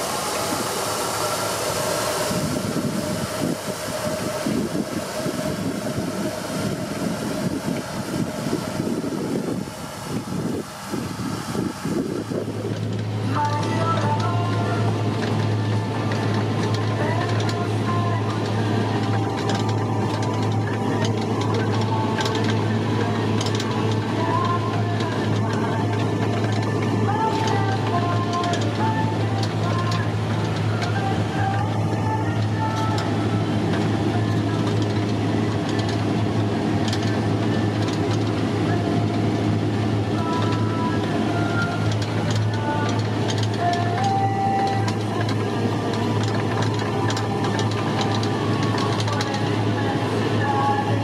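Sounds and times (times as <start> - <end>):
high hiss: 0.0 - 13.8
constant machinery whine: 0.0 - 51.0
tractor diesel engine under load: 0.0 - 51.0.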